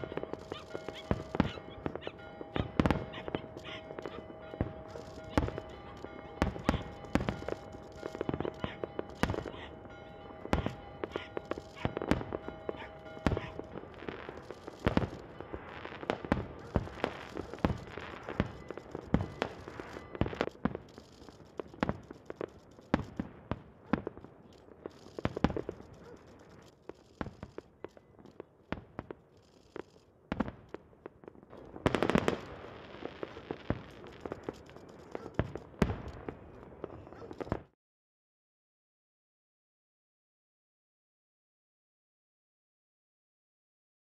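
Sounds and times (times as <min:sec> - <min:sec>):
rapid crackling bangs: 0:00.0 - 0:09.6, 0:10.4 - 0:27.7
fireworks bangs: 0:00.0 - 0:37.7.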